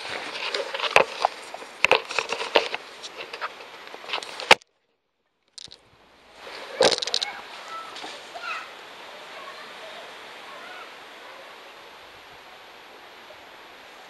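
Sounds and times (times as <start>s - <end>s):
camera handling rustling: 0.2s - 4.6s, 6.8s - 7.3s
sharp clicks and knocks: 5.5s - 5.8s, 6.8s - 7.3s.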